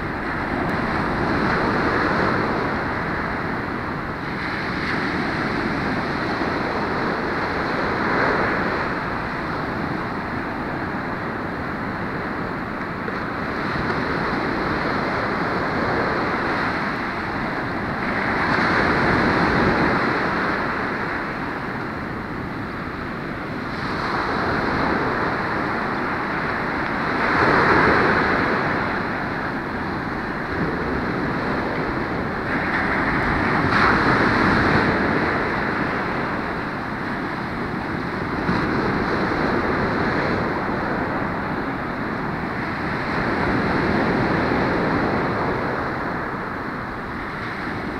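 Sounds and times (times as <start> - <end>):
ocean surf on beach: 0.0 - 47.9.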